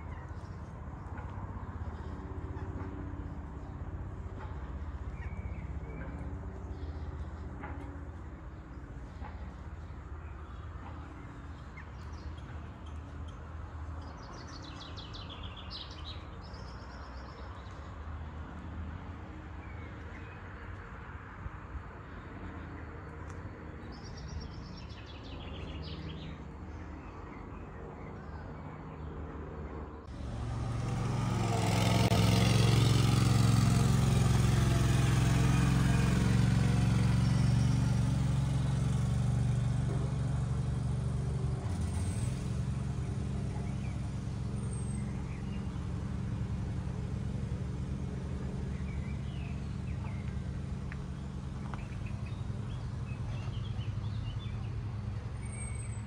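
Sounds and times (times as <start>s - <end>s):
small birds chirping: 0.0s - 18.0s, 22.1s - 29.3s, 42.9s - 46.7s, 47.7s - 56.0s
vehicle engine humming: 0.0s - 27.9s, 28.9s - 56.0s.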